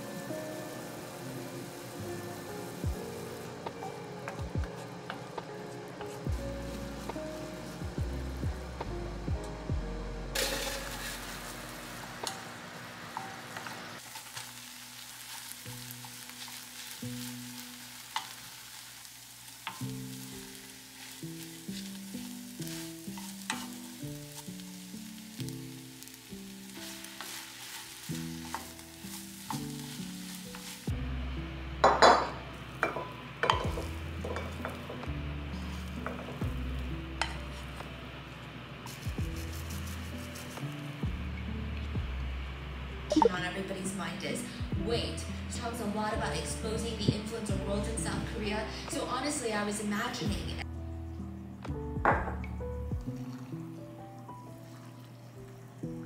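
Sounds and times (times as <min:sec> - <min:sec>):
stir-fry sizzling in a pan: 0:00.0 - 0:50.7
soft background music: 0:00.0 - 0:56.0
spatula scraping a pan: 0:10.4 - 0:11.4, 0:19.6 - 0:24.8, 0:26.7 - 0:30.9.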